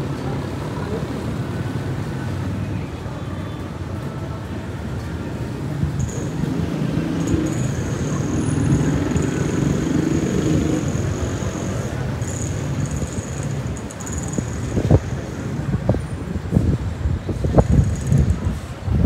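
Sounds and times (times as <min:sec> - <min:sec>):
vehicles passing: 0:00.0 - 0:19.0
engine hum: 0:05.4 - 0:16.0.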